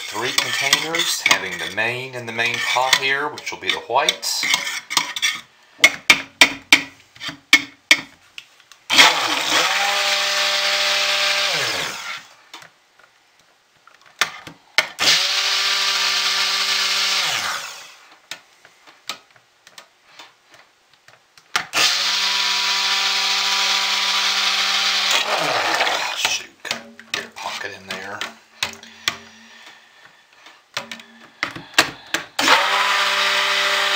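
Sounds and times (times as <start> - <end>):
stick blender motor whine: 8.9 - 12.3, 15.0 - 18.0, 21.8 - 26.4, 32.1 - 33.9.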